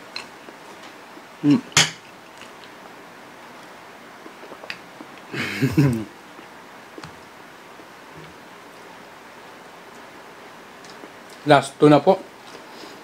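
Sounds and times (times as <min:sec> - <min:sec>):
man eating: 0:00.0 - 0:07.2.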